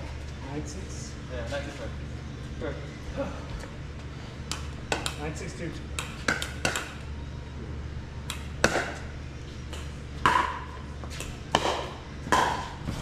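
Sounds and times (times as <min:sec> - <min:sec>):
steady low hum: 0:00.0 - 0:13.0
paddles striking pickleball: 0:04.5 - 0:05.3, 0:06.0 - 0:07.0, 0:08.2 - 0:09.1, 0:09.7 - 0:13.0.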